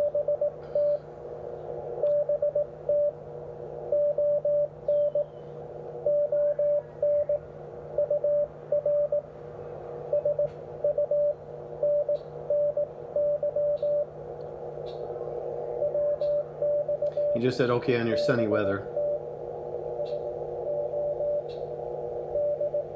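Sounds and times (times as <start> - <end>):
morse code tone: 0.0 - 1.0, 2.0 - 3.2, 3.9 - 5.3, 6.0 - 9.3, 10.1 - 14.1, 15.8 - 19.3, 20.0 - 21.5, 22.3 - 22.9
faint steady tone: 0.0 - 9.3, 15.2 - 22.9
radio band hiss: 17.1 - 19.0.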